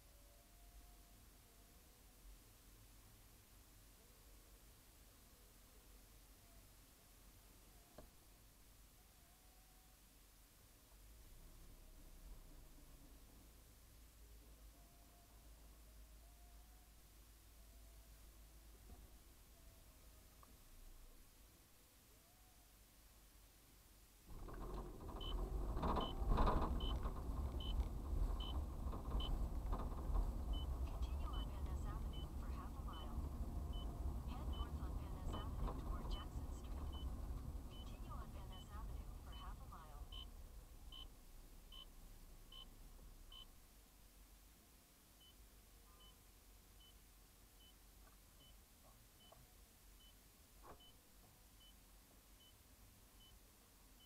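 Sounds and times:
car driving rumble: 10.9 - 14.7, 24.3 - 43.7.

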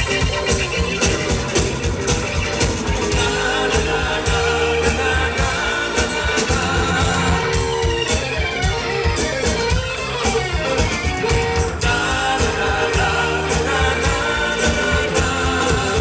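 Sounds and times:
electric guitars: 0.0 - 16.0
keyboards: 0.0 - 16.0
steady drum beat: 0.0 - 16.0
man singing: 3.1 - 7.8, 11.8 - 16.0.

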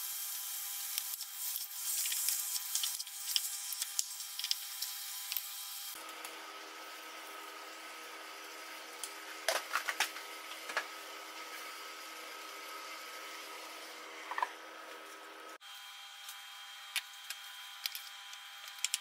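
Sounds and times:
meat sizzling in a pan: 0.0 - 5.9.

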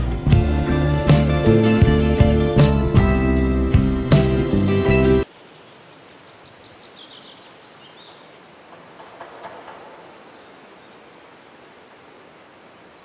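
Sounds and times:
steady outdoor hiss: 0.0 - 13.0
faint bird chirps: 5.5 - 13.0.

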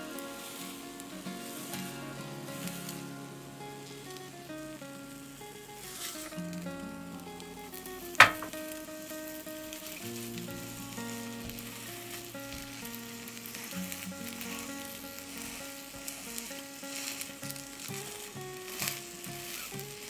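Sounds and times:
background music single notes: 0.0 - 20.0
egg sizzling in a pan: 7.7 - 20.0.

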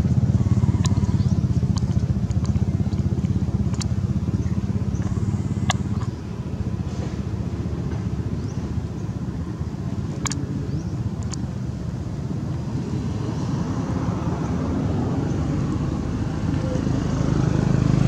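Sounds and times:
low engine rumble: 0.0 - 18.0
bird chirps and clicks: 0.4 - 6.2, 10.2 - 11.5.

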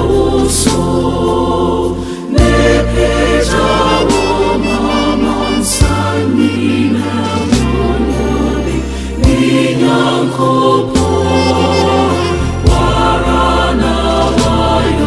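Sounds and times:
vocal group singing: 0.0 - 15.0.

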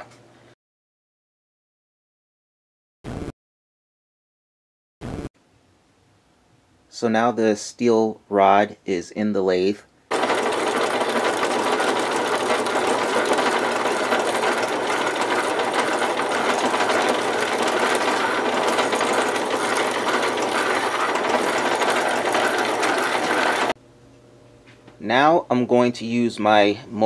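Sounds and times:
drill cutting steel: 10.1 - 23.8
lathe motor and gear whir: 10.1 - 23.8.

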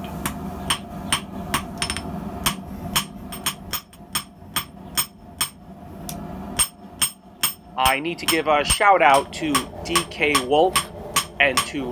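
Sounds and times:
hammer blows on anvil: 6.6 - 11.9.

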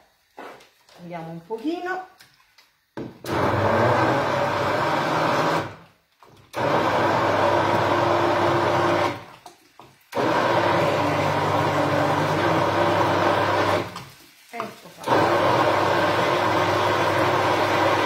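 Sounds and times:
electric blender running: 3.2 - 5.8, 6.5 - 9.3, 10.1 - 14.0, 15.0 - 18.0.

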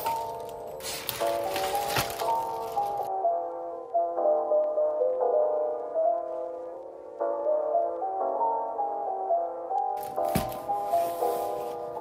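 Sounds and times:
rustling handling noise: 0.0 - 3.1, 10.0 - 12.0
soft background music: 0.0 - 12.0
cardboard box thump: 10.0 - 10.9.

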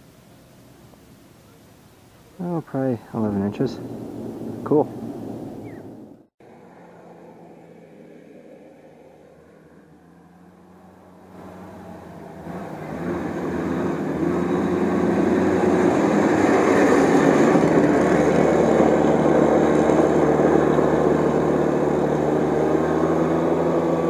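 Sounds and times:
go-kart engine running: 10.2 - 24.0.

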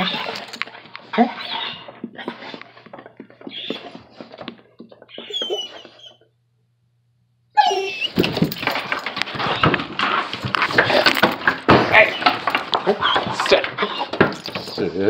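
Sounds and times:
dog whining: 0.0 - 6.3, 7.5 - 8.6, 11.9 - 14.9.

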